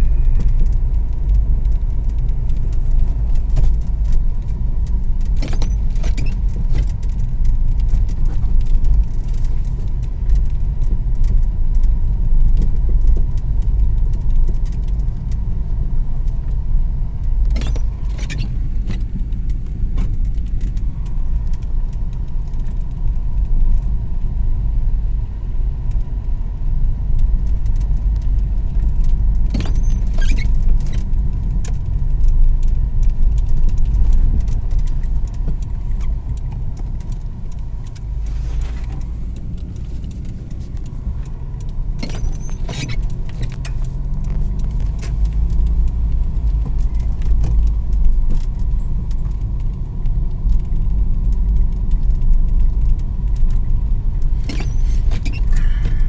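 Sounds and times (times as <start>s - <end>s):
car rumbling on snowy road: 0.0s - 56.0s
squeaky jingling rattles: 54.5s - 55.8s.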